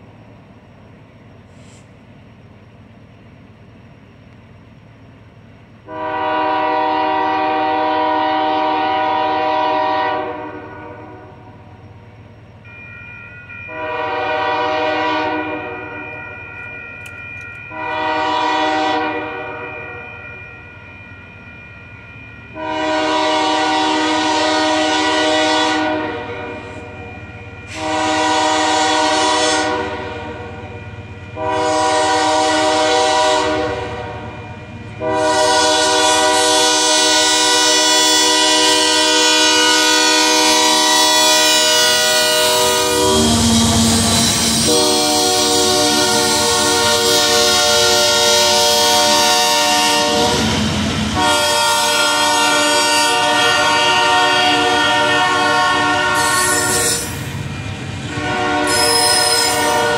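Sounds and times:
passing train rumble: 0.0s - 59.9s
locomotive air horn blasts: 5.8s - 11.5s, 13.7s - 16.0s, 17.7s - 20.1s, 22.5s - 27.0s, 27.7s - 34.4s, 35.0s - 57.2s, 58.1s - 59.9s.

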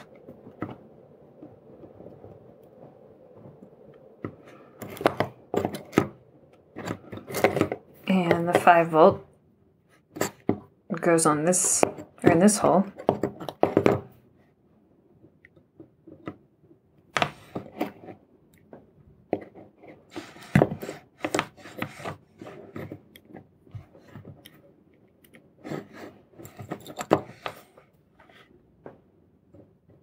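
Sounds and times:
small clicks taps and crackles: 15.2s - 16.4s, 22.8s - 25.5s.

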